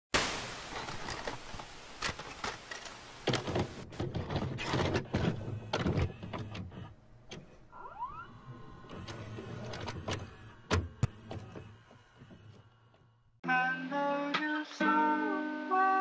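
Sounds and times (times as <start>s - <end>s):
mechanical clicks and clunks: 0.8s - 13.2s
tape mechanism whine: 4.6s - 13.4s.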